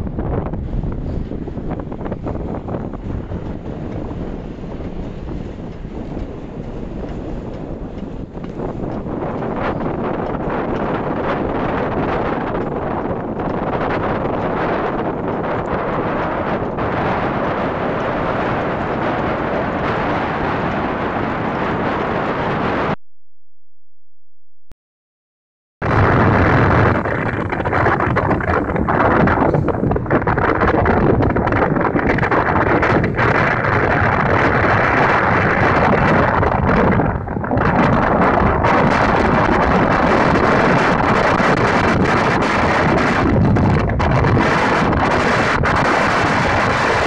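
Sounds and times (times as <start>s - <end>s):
wind buffeting microphone: 0.0s - 23.0s, 25.8s - 47.0s
surf breaking on beach: 25.8s - 47.0s.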